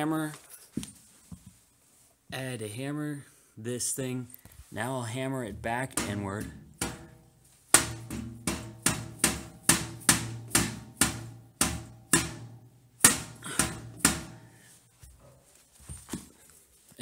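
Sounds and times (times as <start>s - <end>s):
hammer striking metal grate: 5.4s - 14.7s.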